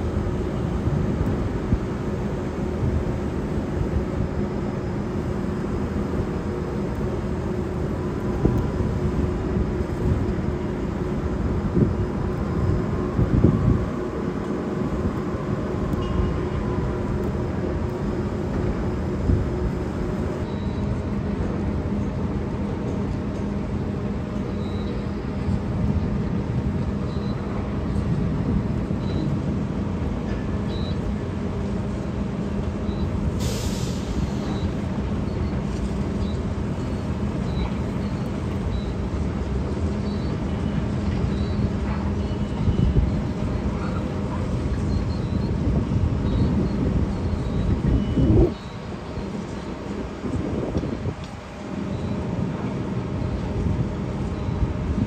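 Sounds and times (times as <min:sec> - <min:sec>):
diesel machinery droning: 0:00.0 - 0:55.0
hiss of released air: 0:33.3 - 0:34.8.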